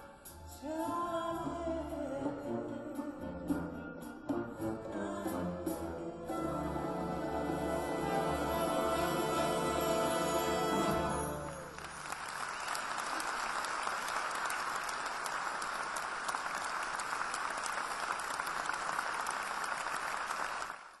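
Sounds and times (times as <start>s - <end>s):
accordion and orchestra chord: 5.5s - 11.8s
audience applauding: 10.4s - 21.0s.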